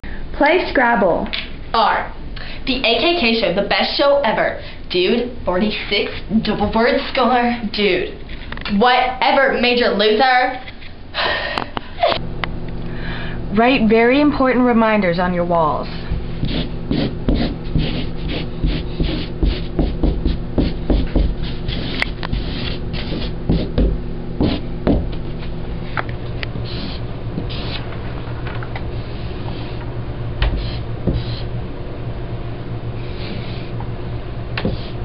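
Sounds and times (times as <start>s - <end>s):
scratchy writing strokes on wall: 15.9s - 25.1s, 26.6s - 27.9s, 29.0s - 29.8s, 30.4s - 31.5s, 33.0s - 33.8s, 34.6s - 35.0s.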